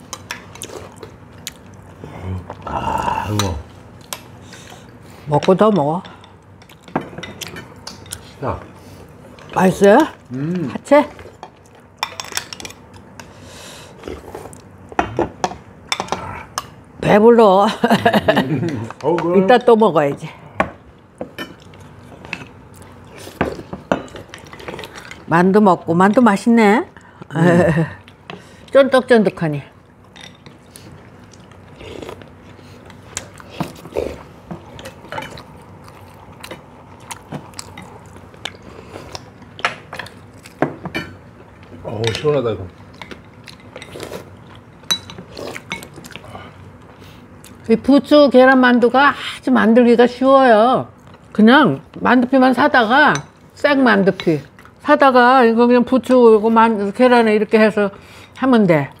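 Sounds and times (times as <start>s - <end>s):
chewing: 30.5s - 40.6s, 42.7s - 47.6s.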